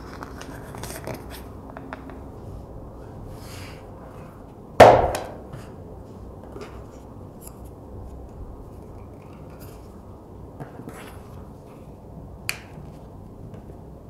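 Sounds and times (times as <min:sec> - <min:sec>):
sharp knock: 0:04.8 - 0:05.4.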